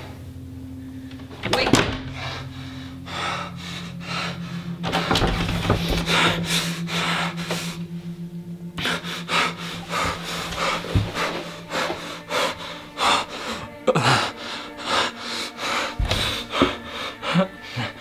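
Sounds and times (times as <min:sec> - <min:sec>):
low steady hum: 0:00.0 - 0:18.0
ragged gasping breaths: 0:02.0 - 0:07.9, 0:08.8 - 0:18.0
young man sobbing: 0:08.8 - 0:18.0.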